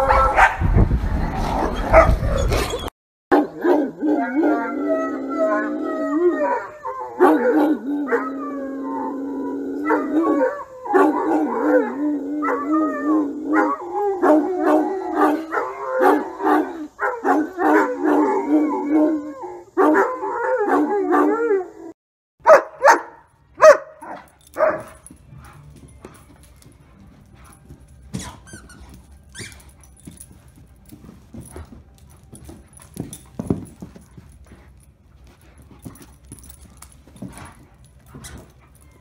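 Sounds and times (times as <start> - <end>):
dog howling: 3.4 - 22.0
dog barking sharply: 22.4 - 24.9.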